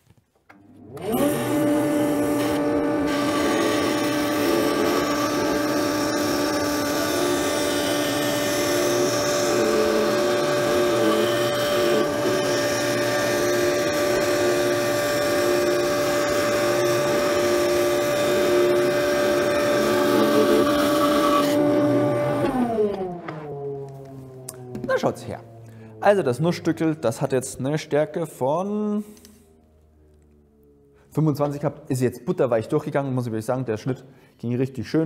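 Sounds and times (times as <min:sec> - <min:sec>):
band saw motor whine: 0:00.6 - 0:27.3
pulsing lower tone: 0:22.0 - 0:27.1.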